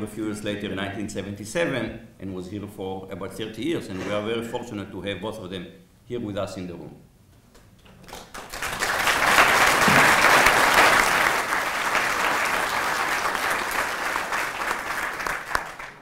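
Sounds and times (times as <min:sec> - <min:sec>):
audience applauding: 0:08.1 - 0:16.0.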